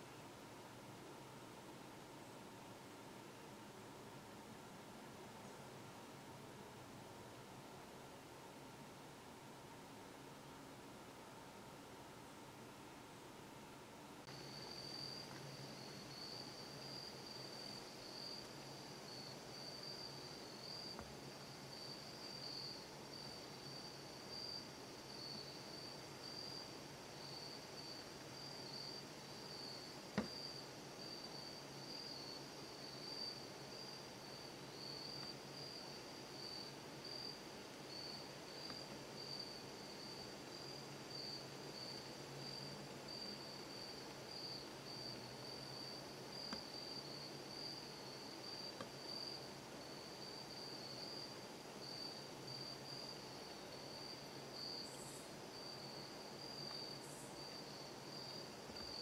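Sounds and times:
insects trilling: 14.2s - 59.0s.

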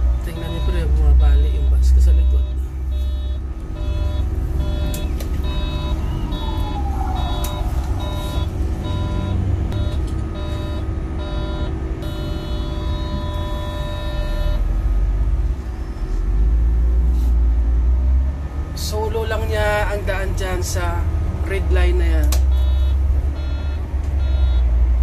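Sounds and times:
bus engine and road rumble: 0.0s - 25.0s
electronic beeps: 0.3s - 14.7s, 22.5s - 24.7s.

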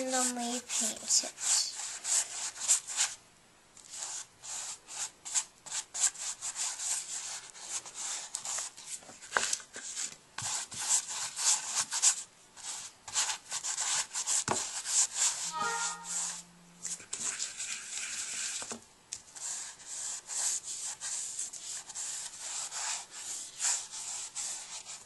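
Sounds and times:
paintbrush scrubbing on canvas: 0.0s - 3.2s, 9.8s - 18.6s, 19.3s - 25.0s.

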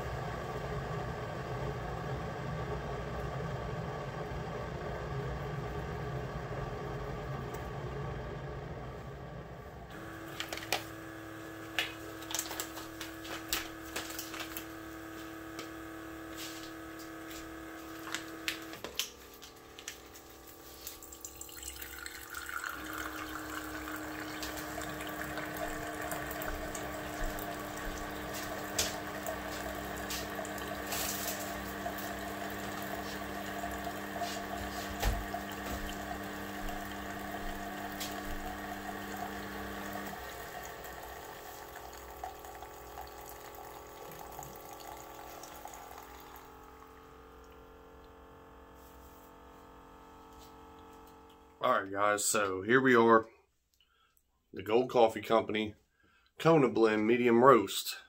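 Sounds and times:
coffee maker pump humming: 0.0s - 52.5s
coffee streaming into mug: 9.9s - 48.2s.

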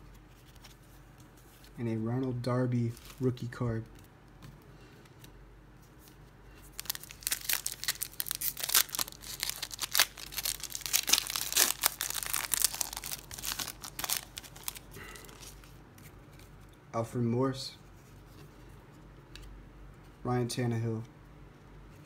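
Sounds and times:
foil wrapper crinkling and tearing: 6.7s - 15.7s.

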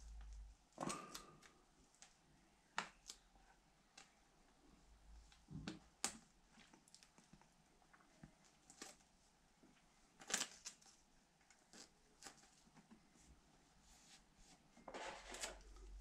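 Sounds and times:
rustling of masking shapes: 5.2s - 16.0s.

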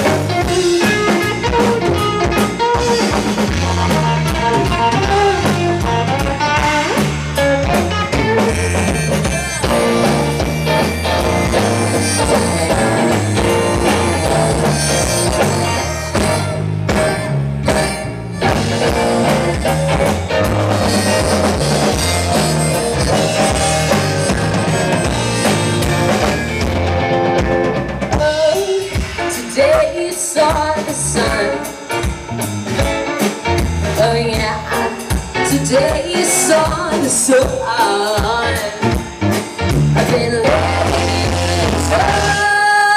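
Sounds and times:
bass guitar: 0.0s - 42.9s
drum kit: 0.0s - 42.9s
electric guitar: 0.0s - 42.9s
woman singing: 11.6s - 15.7s, 28.1s - 31.9s, 33.9s - 39.0s, 40.0s - 42.9s.

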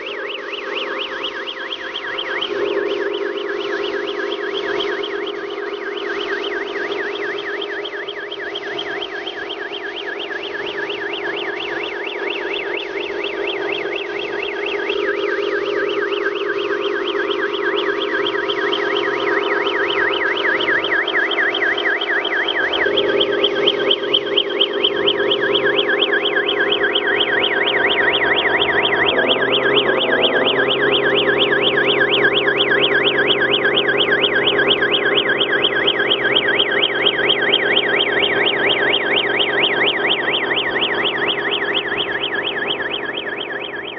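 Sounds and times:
electronic siren yelping: 0.0s - 43.9s
steady hum: 19.3s - 43.6s.

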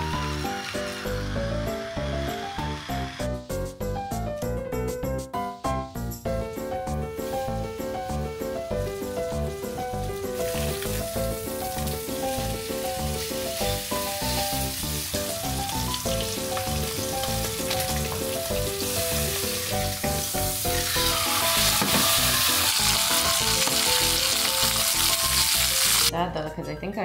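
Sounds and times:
steak sizzling in a pan: 8.8s - 26.1s.

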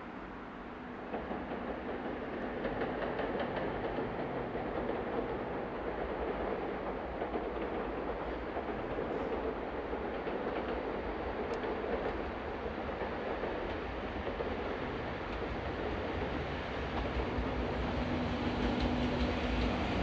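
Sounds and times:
train wheels rumbling on rails: 0.2s - 20.0s.

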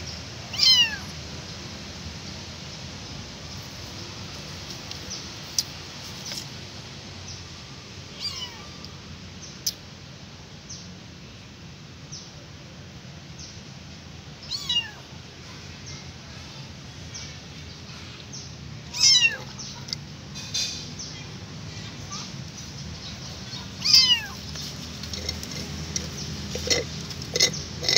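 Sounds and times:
kitten meowing: 0.5s - 1.1s, 8.1s - 8.8s, 14.4s - 15.0s, 18.9s - 19.6s, 23.8s - 24.4s.

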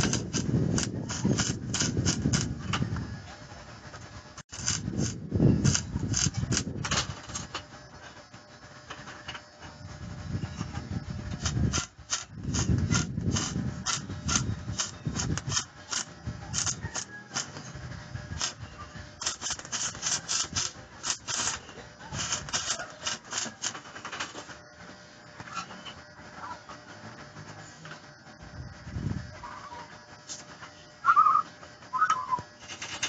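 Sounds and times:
metal tubes scraping: 0.0s - 2.8s, 4.4s - 7.7s, 11.4s - 24.6s
welding arc crackling: 0.0s - 2.8s, 3.8s - 7.7s, 10.6s - 17.6s, 18.2s - 24.6s.

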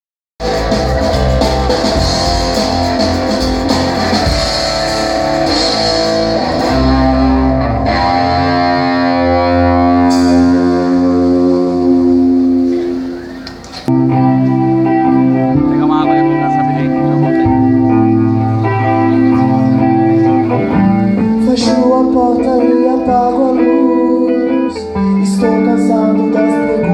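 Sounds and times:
drum strokes: 0.4s - 7.6s
rock band playing live: 0.4s - 26.9s.

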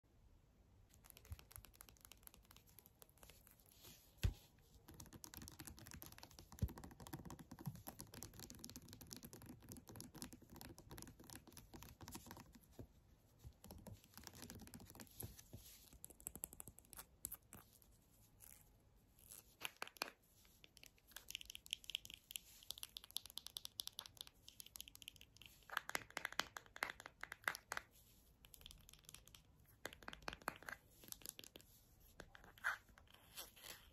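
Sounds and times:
soft rustling: 11.9s - 20.9s.

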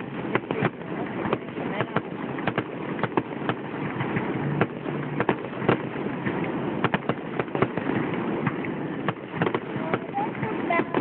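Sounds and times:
continuous rumbling: 0.0s - 11.0s
fireworks bursting: 0.0s - 11.0s.

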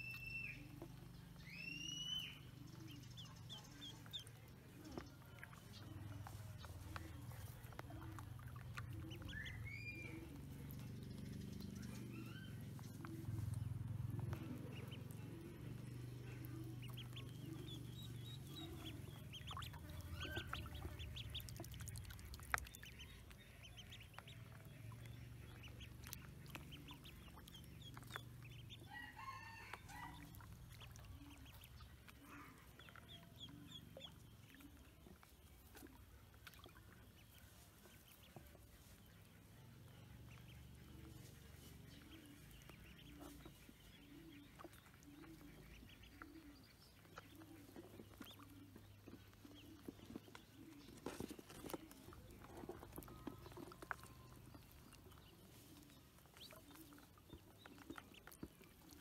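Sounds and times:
ducklings peeping: 0.0s - 59.0s
low clucking calls: 11.8s - 31.6s.

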